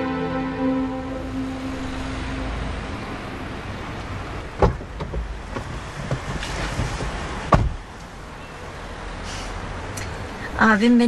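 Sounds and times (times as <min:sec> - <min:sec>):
knocks and rustles climbing in: 0:04.5 - 0:07.9
car door opening click: 0:04.6 - 0:07.8
car door shutting thump: 0:04.6 - 0:07.8.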